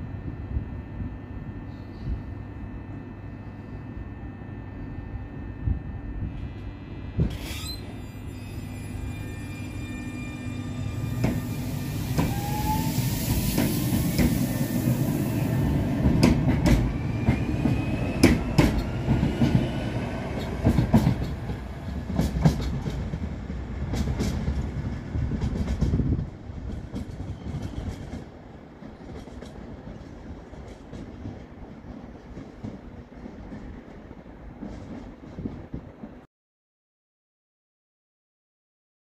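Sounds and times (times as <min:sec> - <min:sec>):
tram motor whine: 0:00.0 - 0:29.6.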